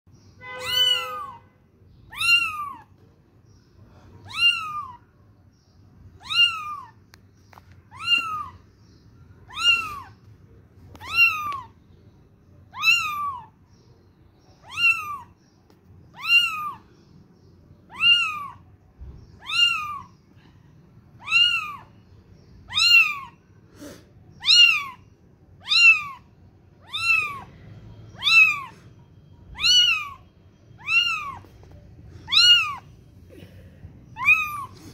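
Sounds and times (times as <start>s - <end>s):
kitten mewing: 2.1s - 2.9s, 4.2s - 5.0s, 6.2s - 7.0s, 7.9s - 8.6s, 9.5s - 10.2s, 10.9s - 11.7s, 12.7s - 13.6s, 14.6s - 15.4s, 16.2s - 16.8s, 17.9s - 18.6s, 19.4s - 20.2s, 21.2s - 21.9s, 22.7s - 25.0s, 25.6s - 27.5s, 28.2s - 28.8s, 29.5s - 30.2s, 30.8s - 31.5s, 32.2s - 33.5s, 34.1s - 34.9s.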